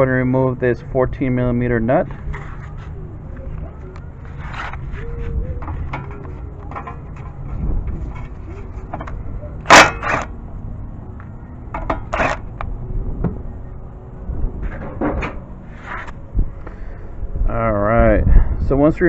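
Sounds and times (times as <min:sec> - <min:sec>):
hand tools clanking and scraping: 0:04.2 - 0:10.3, 0:11.7 - 0:12.5.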